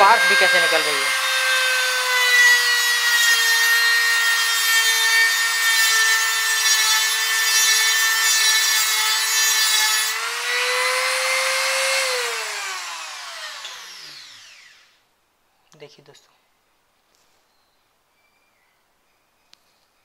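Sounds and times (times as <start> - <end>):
die grinder motor whine: 0.0 - 15.0.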